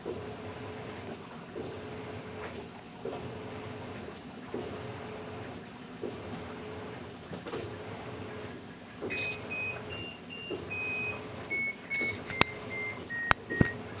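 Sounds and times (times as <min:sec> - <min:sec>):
electronic beep tune: 0:09.1 - 0:13.8.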